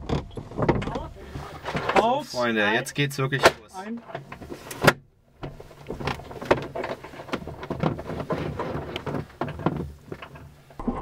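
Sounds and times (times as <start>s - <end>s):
cockpit rattling and knocking: 0.0s - 2.2s, 3.4s - 10.8s.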